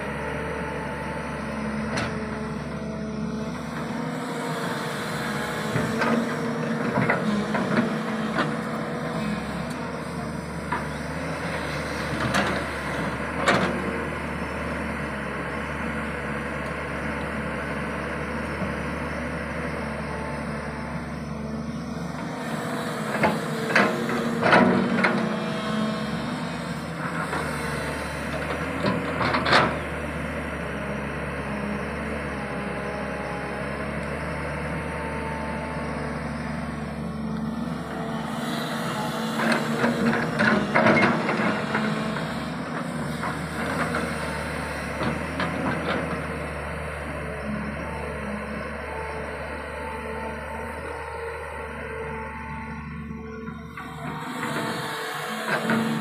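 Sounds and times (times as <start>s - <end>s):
excavator engine and hydraulics: 0.0s - 56.0s.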